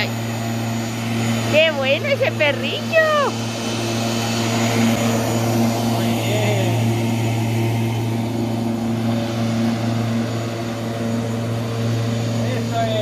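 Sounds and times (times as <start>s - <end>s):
electric lawnmower humming: 0.0s - 13.0s.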